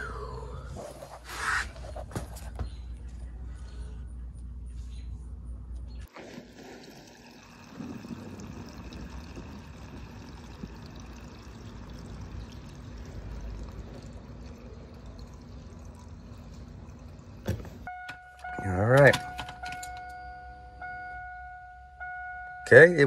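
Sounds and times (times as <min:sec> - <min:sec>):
fuel pouring from can: 0:06.1 - 0:17.9.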